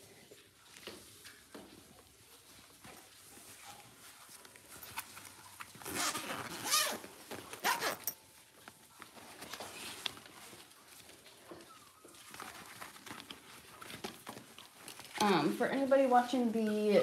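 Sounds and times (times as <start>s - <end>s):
rasping rustling handling noise: 0.0s - 17.0s.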